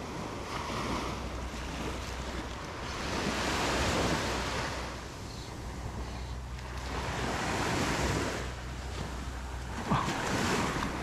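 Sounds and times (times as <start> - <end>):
ocean surf breaking: 0.0 - 11.0
wind rumble on microphone: 0.0 - 11.0.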